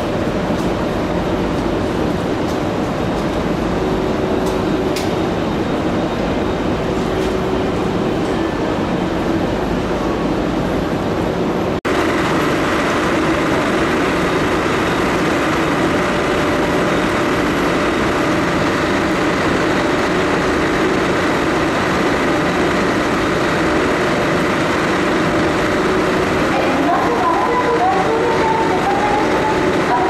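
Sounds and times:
electric train running: 11.9s - 30.0s.

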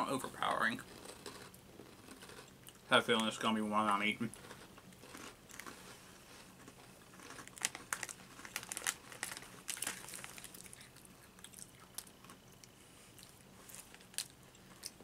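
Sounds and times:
rice crackers crunching: 0.9s - 15.0s
plastic snack bag crinkling: 6.6s - 12.4s, 13.2s - 15.0s.

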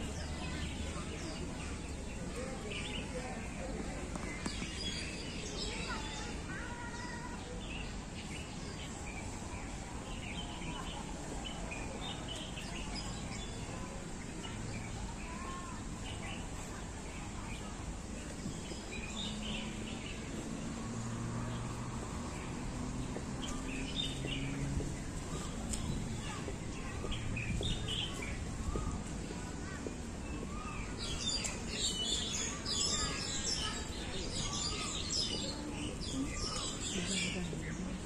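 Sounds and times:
birds chirping: 0.0s - 38.0s.

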